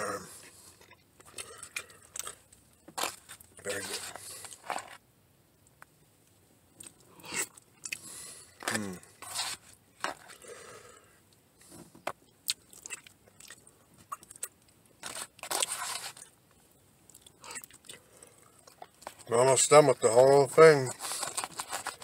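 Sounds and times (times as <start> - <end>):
person chewing: 0.3 - 5.0, 6.8 - 10.7, 12.2 - 16.4, 17.0 - 19.3
fork scraping food container: 9.2 - 10.3, 15.0 - 16.3, 20.9 - 22.0.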